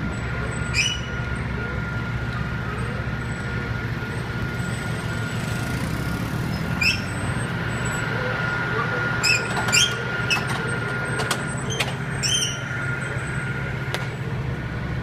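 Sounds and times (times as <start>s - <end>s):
diesel engine idling: 0.0s - 15.0s
high-pitched squeak: 9.2s - 10.6s, 11.6s - 12.7s.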